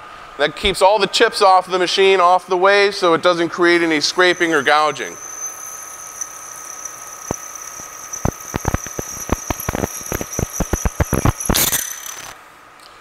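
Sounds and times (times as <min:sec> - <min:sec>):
milling machine whine: 0:03.5 - 0:12.4
drill ticking and snapping: 0:04.2 - 0:12.4.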